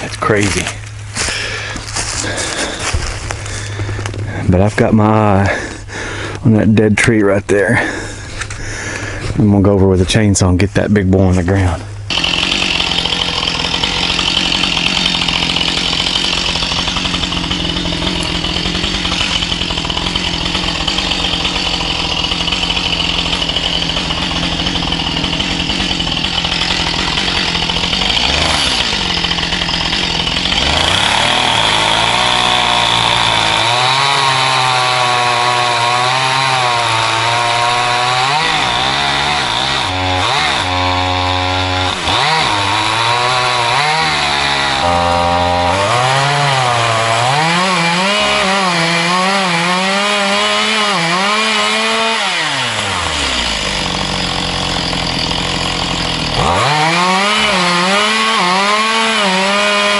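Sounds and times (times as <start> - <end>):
chainsaw cutting wood: 0.0 - 6.4, 11.5 - 59.9.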